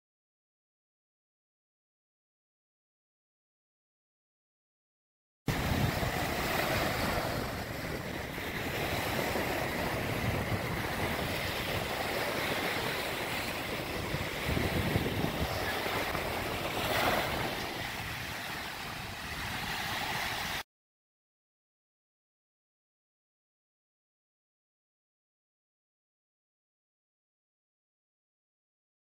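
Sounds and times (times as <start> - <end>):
surf washing onto beach: 5.5 - 20.6
wind gusting on microphone: 5.5 - 20.6.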